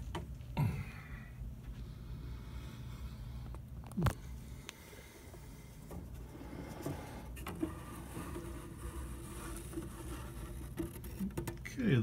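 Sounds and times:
faint steady hum: 0.0 - 12.0
board scraping against wood: 5.9 - 11.7
small knocks: 9.3 - 12.0.

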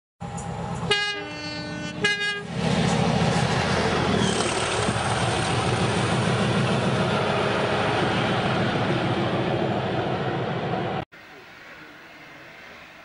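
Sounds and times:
locomotive two-tone horn: 0.8 - 2.5.

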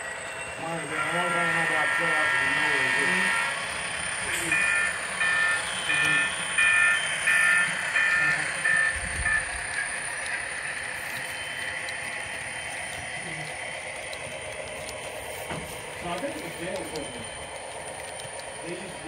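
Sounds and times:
freight cars rolling on track: 0.0 - 19.0
model locomotive horn blasts: 1.0 - 3.5.

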